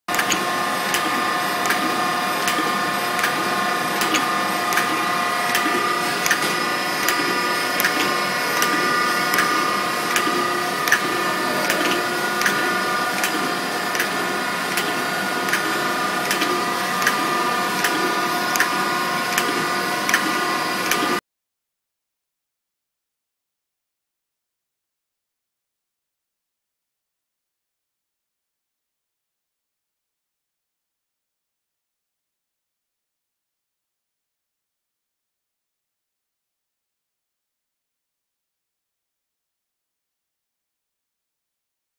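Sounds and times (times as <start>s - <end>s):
grinder whining: 0.1s - 21.2s.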